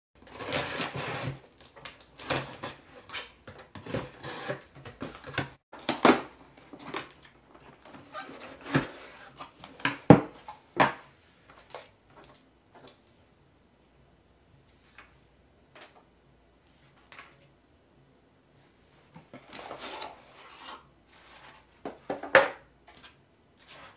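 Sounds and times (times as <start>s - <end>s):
cardboard scraping and rustling: 0.2s - 11.9s.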